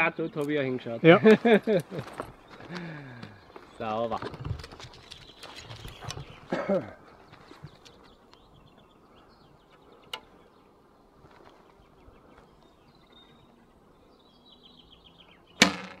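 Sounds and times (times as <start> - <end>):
high chirping trills: 11.9 - 15.6.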